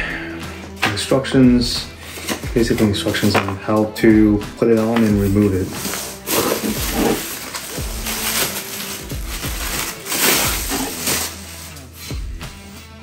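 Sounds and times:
faint background music: 0.0 - 13.0
bubble wrap crinkling: 5.2 - 12.2.

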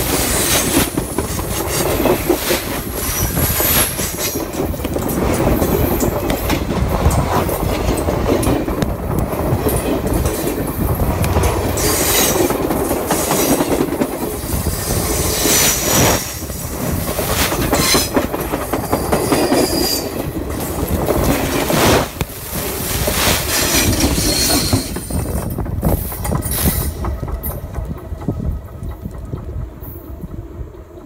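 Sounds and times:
railroad wheels rumbling and clattering: 0.0 - 31.0
high wheel squeals: 23.6 - 25.2.

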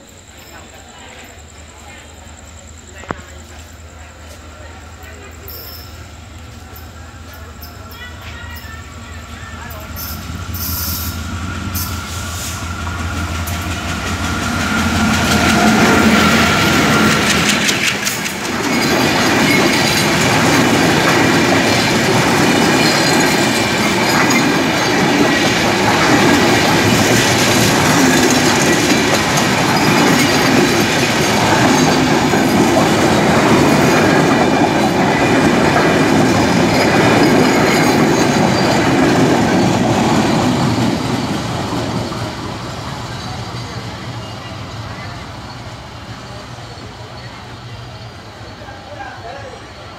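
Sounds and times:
train coaches clattering: 0.0 - 49.9
wheels clicking over rail joints: 13.2 - 42.1.

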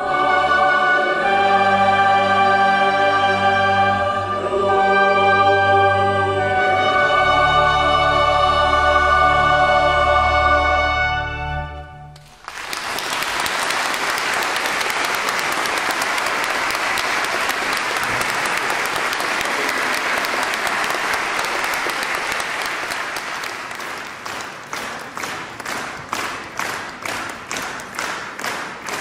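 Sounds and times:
audience applauding: 12.2 - 29.0.

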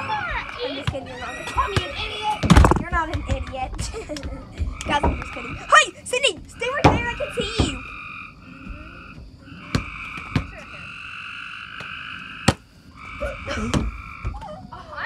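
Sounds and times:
frogs calling: 0.0 - 15.0
volleyball being hit: 9.7 - 10.6, 11.8 - 12.6.

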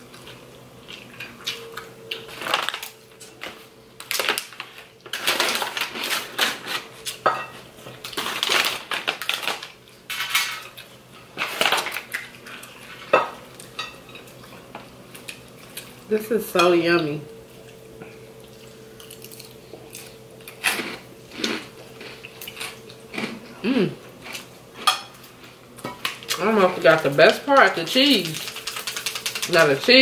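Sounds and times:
crunchy chewing: 17.6 - 23.6.

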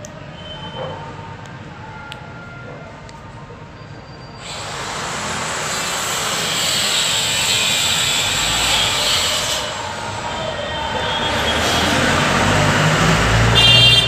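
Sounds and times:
loud steady rushing noise: 4.4 - 13.7.

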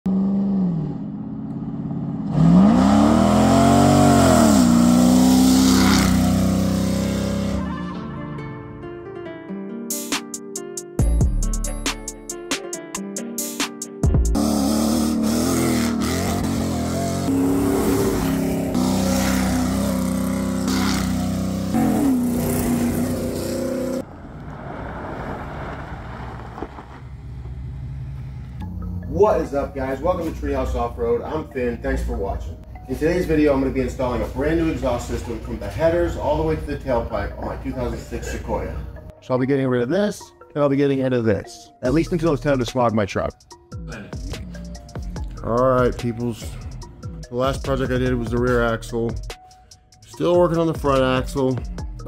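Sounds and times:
engine revving through exhaust: 0.1 - 7.6, 14.3 - 24.1
truck driving off: 0.1 - 8.8, 14.4 - 31.0.

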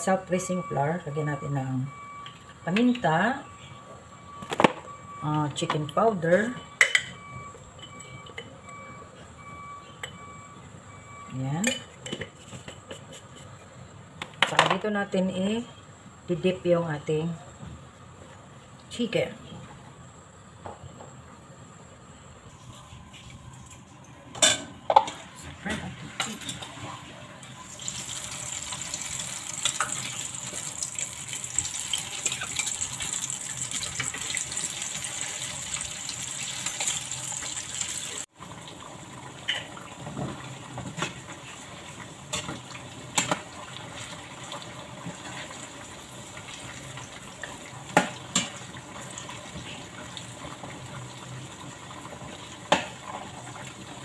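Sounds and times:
chicken sizzling in hot oil: 26.2 - 54.0.

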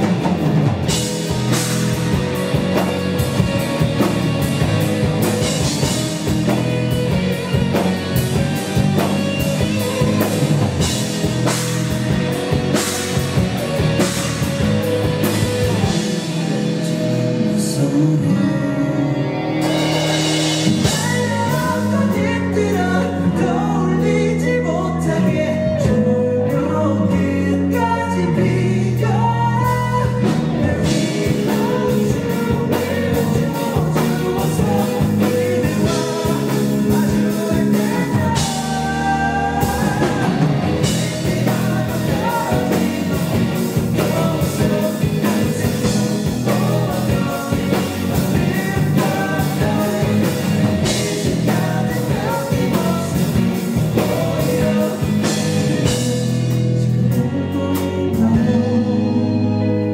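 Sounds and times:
steady drum beat: 0.0 - 17.4, 19.6 - 22.3, 29.8 - 56.8
electric bass: 0.0 - 59.9
rock band playing live: 0.0 - 59.9
person singing: 15.6 - 59.9.

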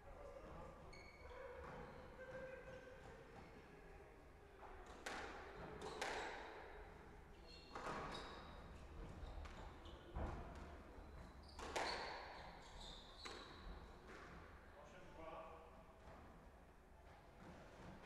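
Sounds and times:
squash ball hitting rackets and walls: 5.0 - 6.7, 11.6 - 12.2.

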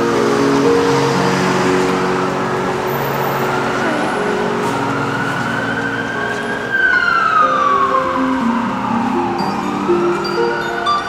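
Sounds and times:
siren wailing: 3.2 - 11.0.

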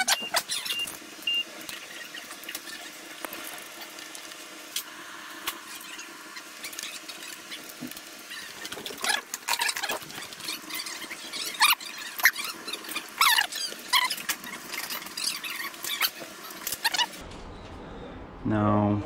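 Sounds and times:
faint steady hum: 0.0 - 19.0
short high squeaks: 8.3 - 17.2.

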